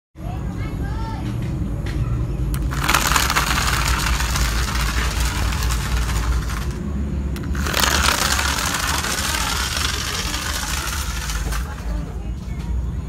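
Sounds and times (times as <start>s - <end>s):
plastic wheels rattling on concrete: 2.5s - 12.6s
small electric motor running: 2.6s - 12.2s.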